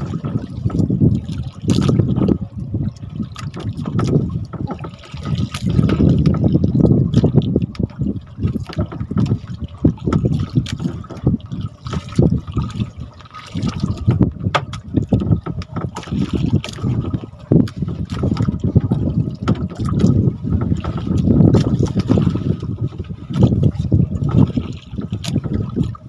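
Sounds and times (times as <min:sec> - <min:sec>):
water sloshing and splashing: 0:00.0 - 0:26.0
sharp knocks and clicks: 0:14.1 - 0:16.1.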